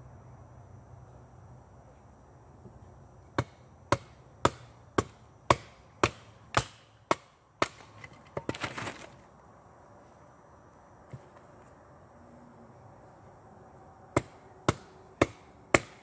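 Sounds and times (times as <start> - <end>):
split wood pieces clattering: 7.8 - 9.2.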